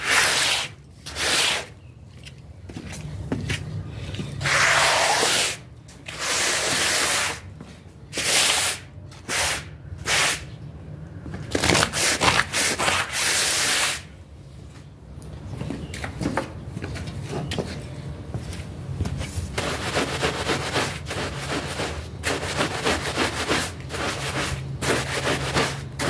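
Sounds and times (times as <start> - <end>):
rubbing strokes on wet floor: 0.0 - 1.8, 4.4 - 7.5, 8.2 - 10.4, 19.5 - 26.0.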